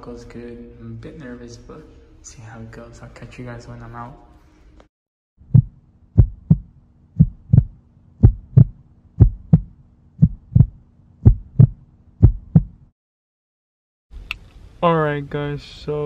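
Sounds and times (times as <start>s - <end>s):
heartbeat thumps: 5.4s - 12.9s.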